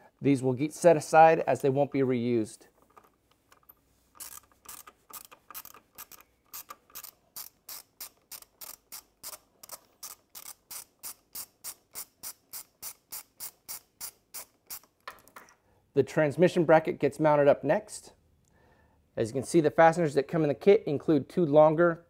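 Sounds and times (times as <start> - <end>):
hand ratchet clicking: 3.5 - 15.0.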